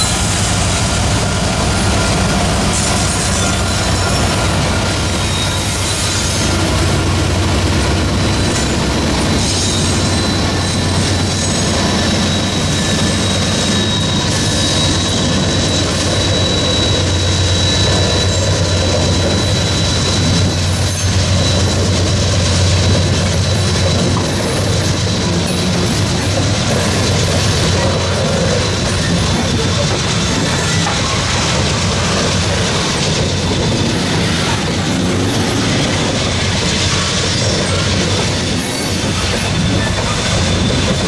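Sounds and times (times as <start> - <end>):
diesel locomotive engine rumble: 0.0 - 41.0.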